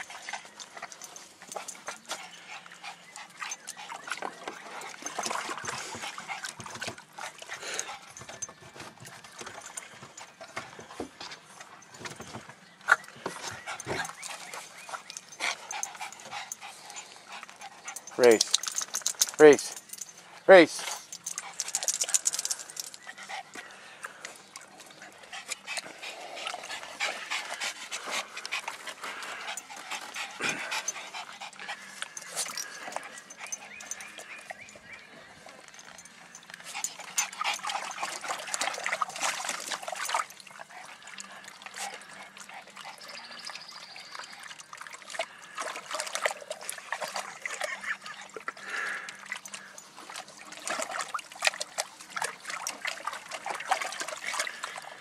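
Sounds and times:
garden hose trickling water: 0.0s - 55.0s
dog splashing in water: 3.3s - 11.2s, 35.9s - 55.0s.

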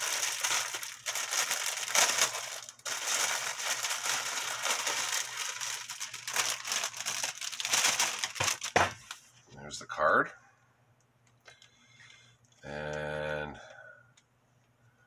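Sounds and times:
plastic packaging crinkling: 0.0s - 9.3s.

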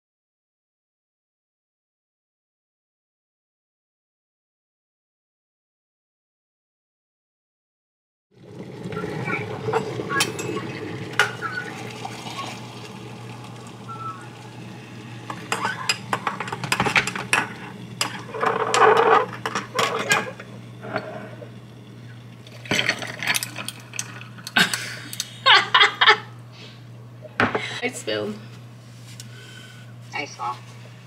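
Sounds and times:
water pouring into mug: 8.4s - 24.6s
ice clinking in glass: 22.5s - 24.3s.

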